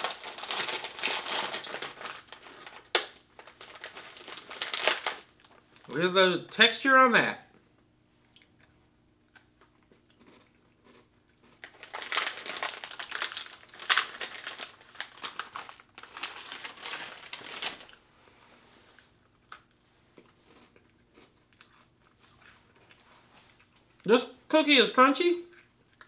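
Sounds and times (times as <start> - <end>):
plastic packet crinkling: 0.0 - 6.0, 11.6 - 18.0
crunchy chewing: 8.3 - 18.0, 19.3 - 24.1.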